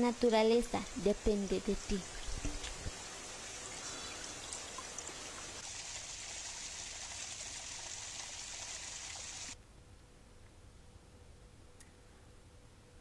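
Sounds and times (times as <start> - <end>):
stream and trickling waterfall: 0.0 - 9.6.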